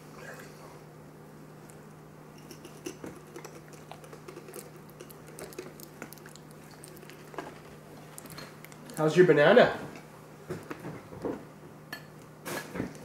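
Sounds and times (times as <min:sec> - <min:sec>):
faint steady hum: 0:00.0 - 0:13.0
toddler chewing: 0:02.8 - 0:09.1.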